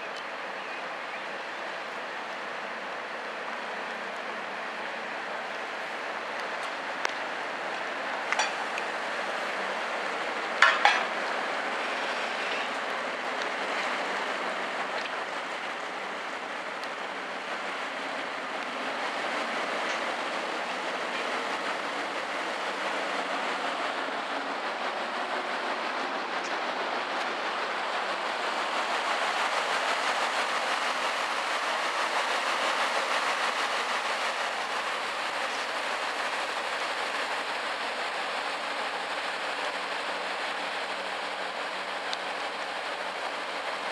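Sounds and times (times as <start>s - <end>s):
boat diesel engine: 0.0s - 43.9s.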